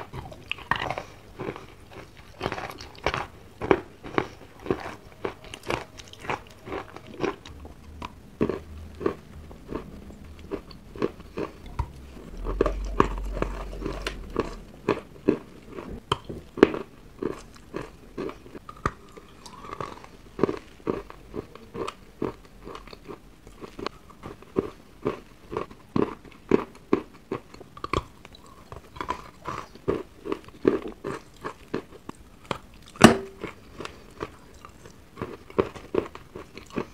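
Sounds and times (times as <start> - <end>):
slushy chewing crunches: 0.0 - 36.9
dull low rumble: 7.4 - 16.0.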